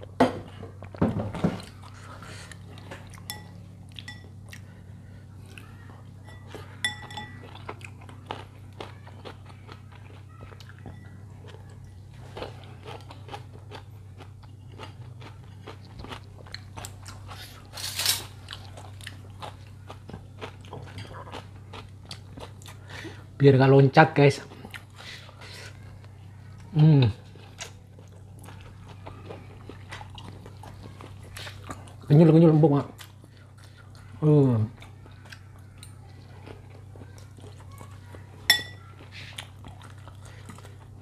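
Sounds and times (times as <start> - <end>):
steady low hum: 0.0 - 41.0
chewing with wet mouth clicks: 1.6 - 4.8, 7.3 - 17.4, 18.4 - 22.9, 24.5 - 25.4, 27.3 - 32.1, 32.9 - 34.2, 34.8 - 41.0.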